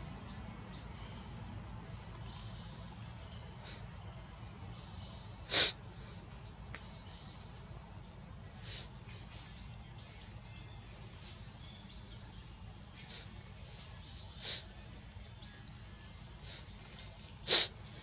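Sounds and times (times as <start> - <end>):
birds chirping: 0.0 - 18.0
sharp burst of breathy noise: 5.5 - 6.2, 17.5 - 17.8.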